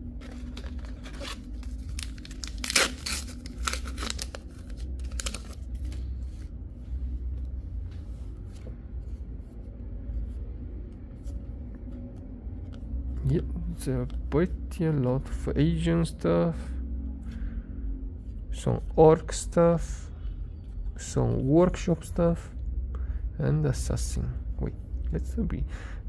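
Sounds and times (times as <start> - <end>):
cards being handled: 0.0 - 13.2
foil wrapper tearing and crinkling: 0.2 - 5.9.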